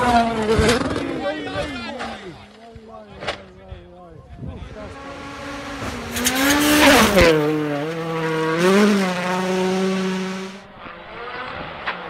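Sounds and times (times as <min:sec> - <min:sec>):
gravel and tyre noise: 0:00.0 - 0:12.0
rally car engine passing: 0:04.6 - 0:12.0.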